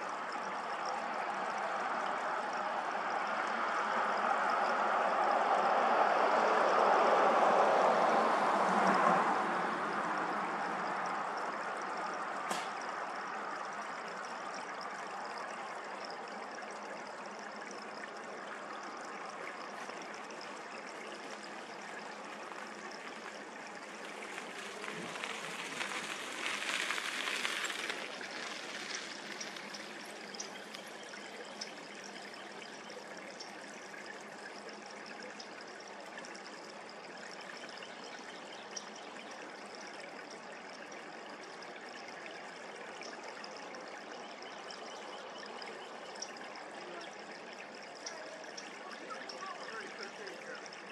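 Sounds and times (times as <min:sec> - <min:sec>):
creek water flowing: 0:00.0 - 0:50.9.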